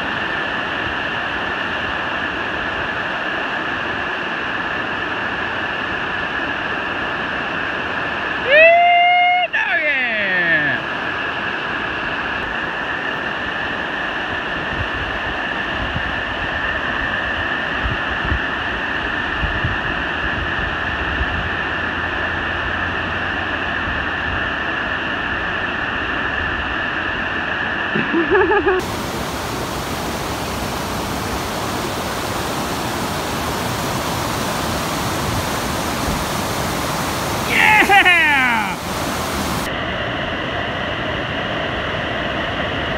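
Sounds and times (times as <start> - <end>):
whitewater rapids rushing: 28.8 - 39.7.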